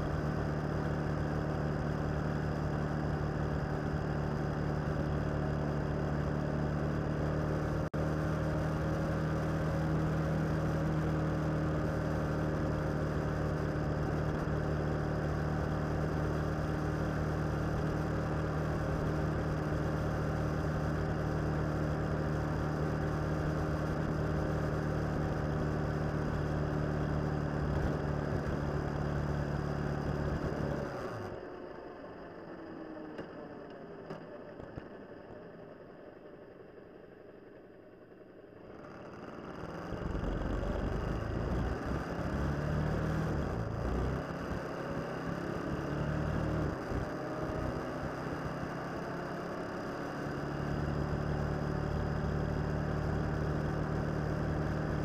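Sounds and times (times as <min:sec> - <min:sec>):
motorcycle engine cruising: 0:00.0 - 0:35.1, 0:38.5 - 0:55.0.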